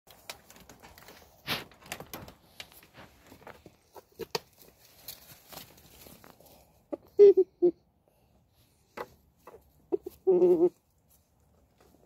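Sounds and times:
chickens scratching in dry leaves: 2.4 - 7.0, 9.4 - 12.0.

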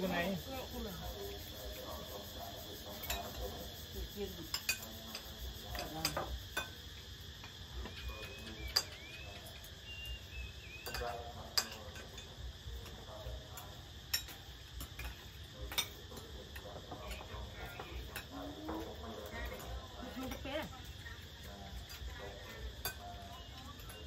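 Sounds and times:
drone of insects: 0.0 - 24.0
cutlery clicking against plates: 2.9 - 3.6, 4.4 - 9.7, 10.8 - 20.5, 21.8 - 24.0.

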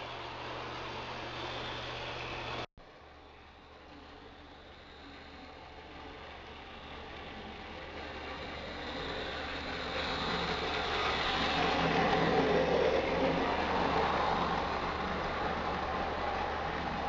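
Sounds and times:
wheels rumbling on rails: 0.0 - 17.0
model train motor whirring: 3.6 - 17.0.

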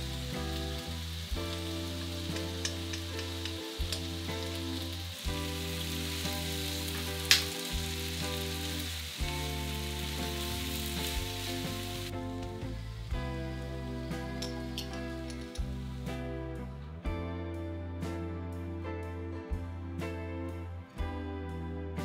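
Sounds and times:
food sizzling in a frying pan: 0.0 - 16.3
soft background music: 0.0 - 22.0.

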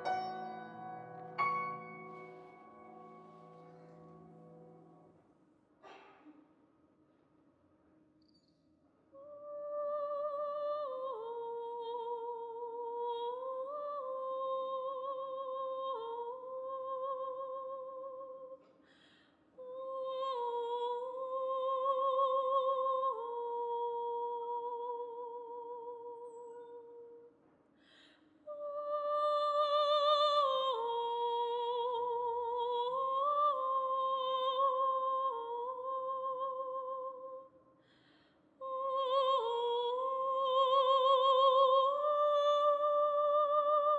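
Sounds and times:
soprano singing with vibrato: 0.0 - 3.2, 9.2 - 18.6, 19.6 - 27.3, 28.5 - 37.5, 38.6 - 43.9.

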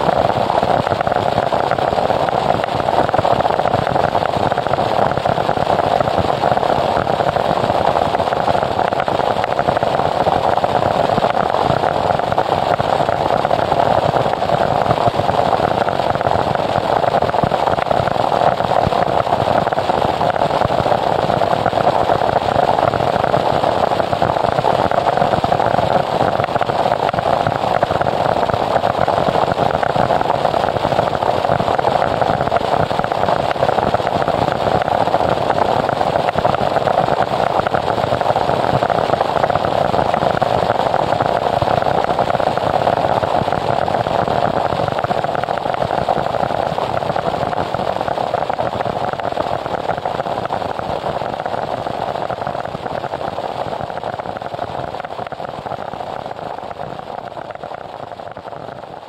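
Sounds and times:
loud static noise music: 0.0 - 57.1.

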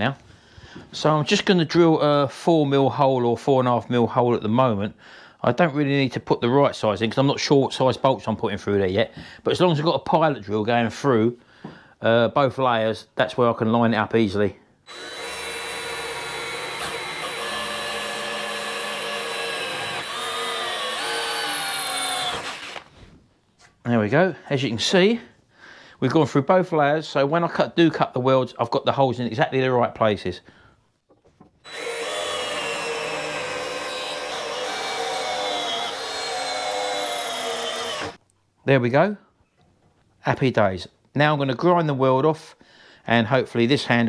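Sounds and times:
electric drill boring through metal: 14.9 - 22.9, 31.6 - 38.2.

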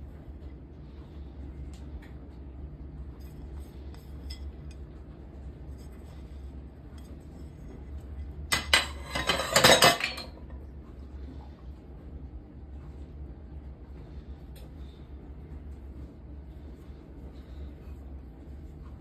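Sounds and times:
low steady hum: 0.0 - 19.0
dishes clattering: 8.5 - 10.5.

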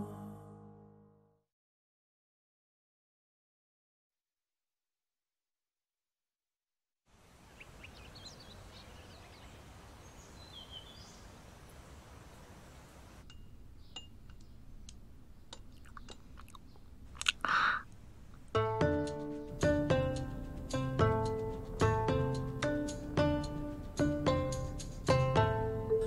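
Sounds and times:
faint bird chirps: 7.3 - 14.7
chopsticks clicking against dishes: 13.3 - 16.6
food being bitten and chewed: 15.5 - 18.5.

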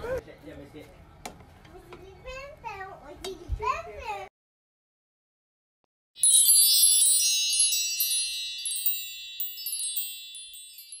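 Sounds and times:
bright metallic chime: 6.2 - 11.0.

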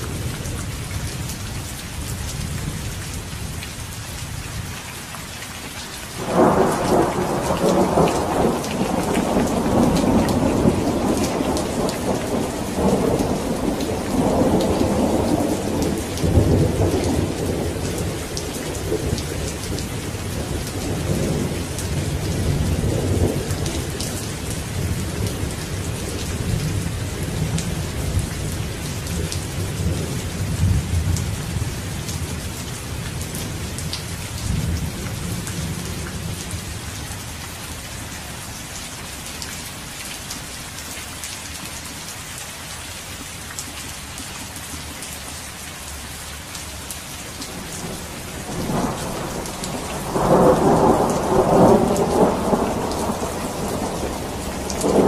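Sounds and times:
steady rain: 0.0 - 55.0
thunder rumbling: 6.2 - 32.4, 47.5 - 55.0.

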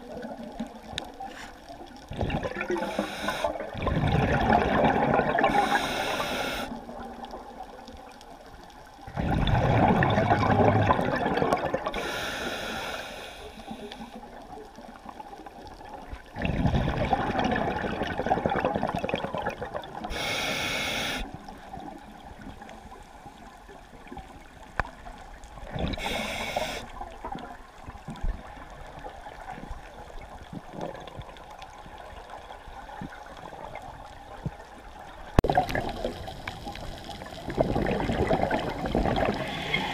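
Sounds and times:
gurgling exhaled bubbles: 0.0 - 6.2, 9.0 - 12.1, 14.6 - 20.5, 25.6 - 34.2, 35.4 - 39.9
regulator hissing inhalations: 2.8 - 3.6, 5.5 - 6.8, 12.0 - 14.2, 20.1 - 21.4, 26.0 - 26.9, 39.4 - 39.9.

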